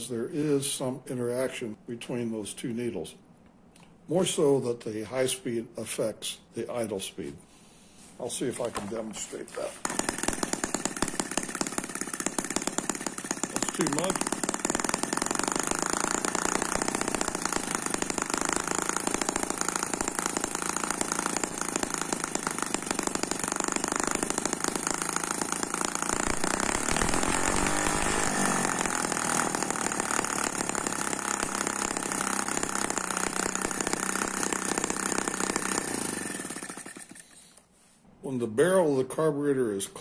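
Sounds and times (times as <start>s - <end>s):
model engine running fast: 9.8s - 37.3s.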